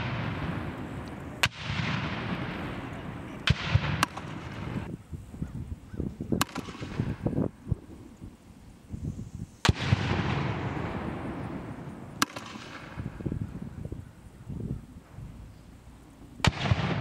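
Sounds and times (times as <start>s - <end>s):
long rolling echo: 0.0s - 4.9s, 9.6s - 14.2s, 16.0s - 17.0s.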